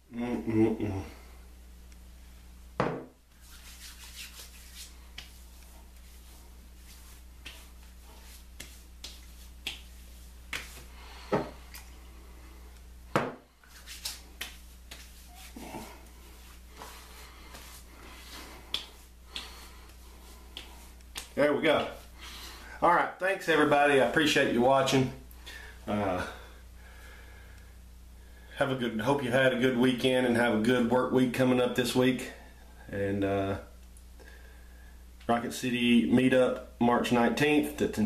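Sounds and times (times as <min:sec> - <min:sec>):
hands slapping face: 0:02.8 - 0:05.4, 0:07.4 - 0:11.9, 0:13.1 - 0:15.9, 0:16.8 - 0:22.0.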